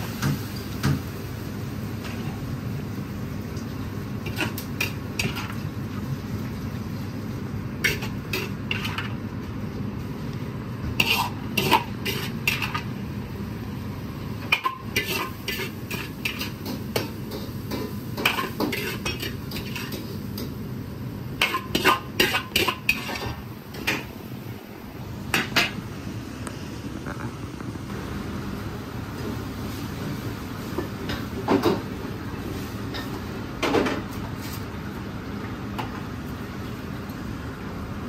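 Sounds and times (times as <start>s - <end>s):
metal ladle scraping a wok: 7.8s - 9.2s, 11.0s - 12.9s, 14.5s - 16.6s, 18.2s - 20.0s, 21.4s - 24.0s.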